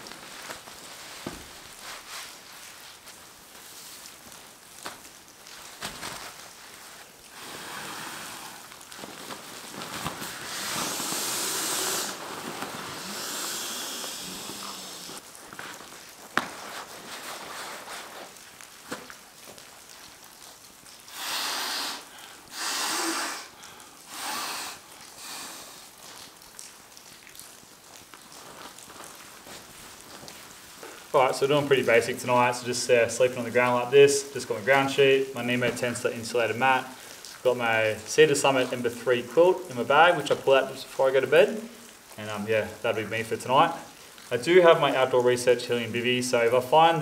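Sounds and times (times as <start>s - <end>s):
nylon fabric crinkling: 0.0s - 21.1s, 25.8s - 32.3s
short breathy air rushes: 10.2s - 15.2s, 21.1s - 25.9s.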